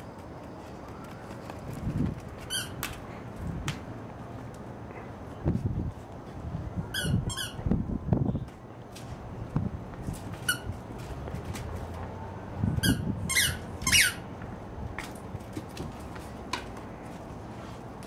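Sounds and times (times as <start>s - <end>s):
squeaky ball squeaking: 2.4s - 2.8s, 6.9s - 7.6s, 10.4s - 10.8s, 12.8s - 14.3s.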